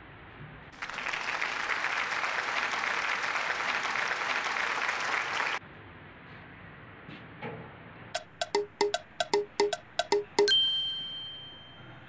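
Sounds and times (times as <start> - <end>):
crowd applauding: 0.8 - 5.6.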